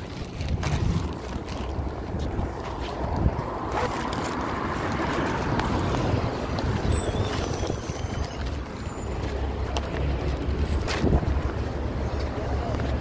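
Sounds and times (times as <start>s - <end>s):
bus engine and road rumble: 0.0s - 13.0s
high-pitched brake squeals: 6.7s - 9.9s.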